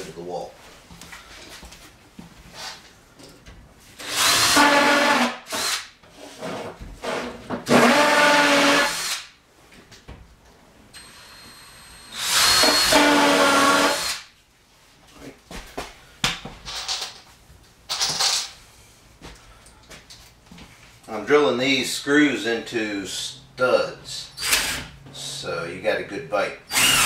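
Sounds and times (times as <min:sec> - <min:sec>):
impact drill driving screws: 0:04.0 - 0:05.9, 0:07.6 - 0:09.3, 0:11.0 - 0:14.2, 0:24.4 - 0:24.9, 0:26.7 - 0:27.0.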